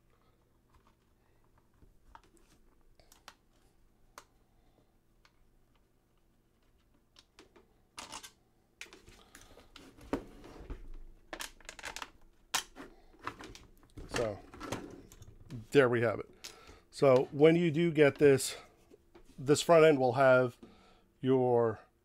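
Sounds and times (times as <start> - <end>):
plastic parts knocking and clunking: 6.6 - 15.6.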